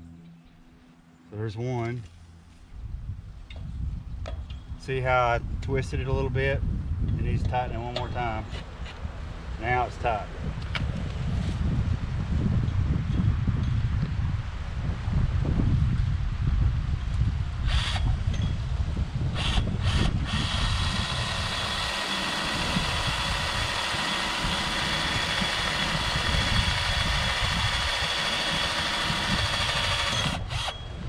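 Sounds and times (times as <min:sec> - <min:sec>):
cordless drill running: 0:17.7 - 0:18.0, 0:19.4 - 0:30.8.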